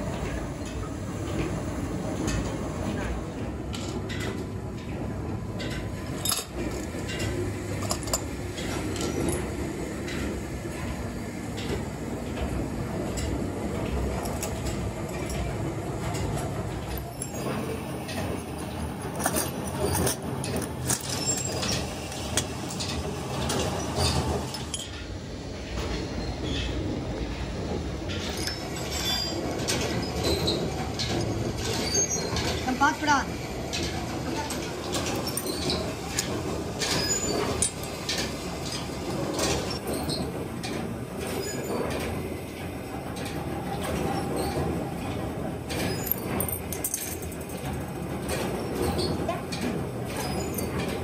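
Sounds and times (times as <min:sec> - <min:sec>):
constant low workshop background: 0:00.0 - 0:51.0
metal clinks and knocks: 0:45.7 - 0:47.8.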